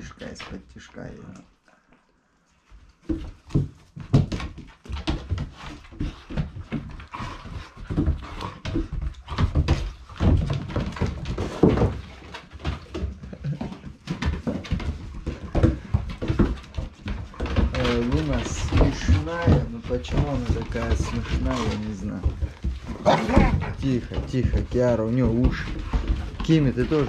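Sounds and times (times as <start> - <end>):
dogs scuffling: 2.5 - 27.0
low dog vocal sounds: 22.9 - 23.8.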